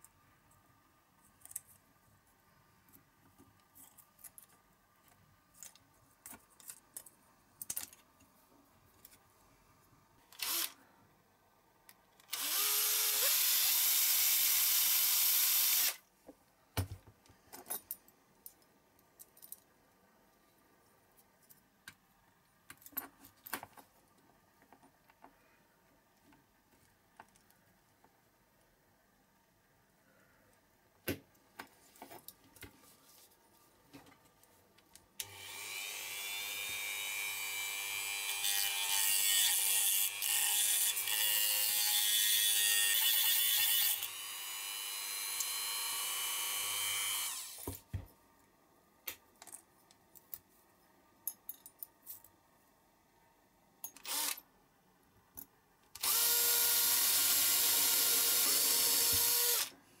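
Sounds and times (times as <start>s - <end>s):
cordless drill drilling metal: 10.4s - 10.8s, 12.3s - 16.0s, 35.2s - 47.6s, 54.1s - 54.4s, 56.0s - 59.7s.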